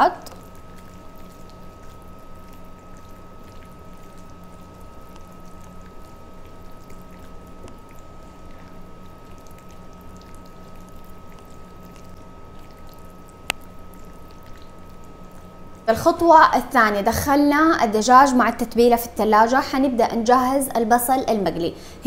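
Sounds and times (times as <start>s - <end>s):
steady background hum: 0.0s - 22.0s
hands squelching through marinated meat: 0.2s - 15.9s.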